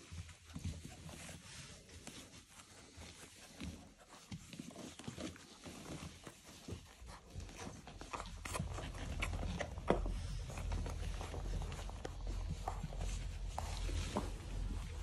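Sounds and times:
puppies scuffling: 0.0s - 15.0s
low rumble: 7.8s - 15.0s.

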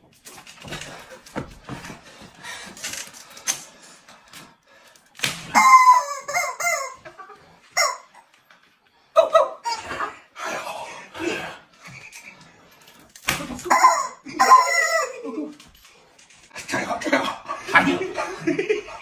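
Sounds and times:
plastic squeeze toy squawking: 5.5s - 7.0s, 13.6s - 15.2s.

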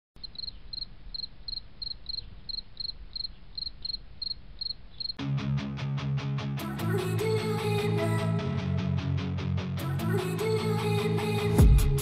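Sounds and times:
cricket chirping: 0.2s - 5.2s
strummed guitar music with beat: 5.2s - 6.9s.

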